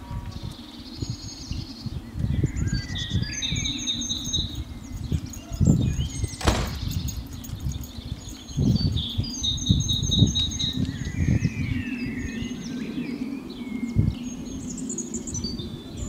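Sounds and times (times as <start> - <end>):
songbirds singing: 0.0 - 16.0.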